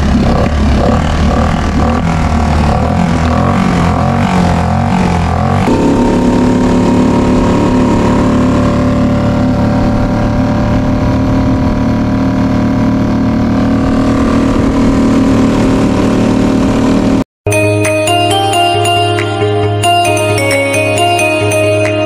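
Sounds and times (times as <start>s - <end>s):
outboard motor running: 0.0s - 17.2s.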